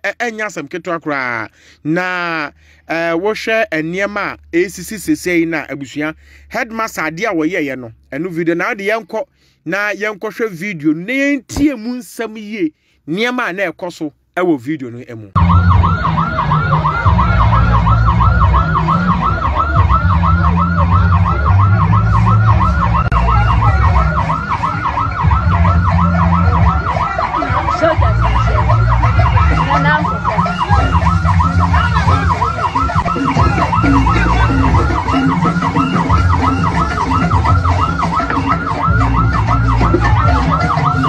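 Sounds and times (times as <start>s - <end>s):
music with thumping bassline: 15.4s - 41.0s
warbling siren tone: 15.4s - 41.0s.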